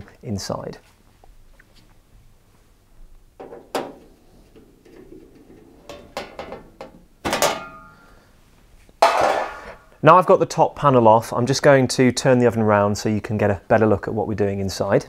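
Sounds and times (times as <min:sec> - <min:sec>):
metal clatter ringing: 0:03.4 - 0:08.2.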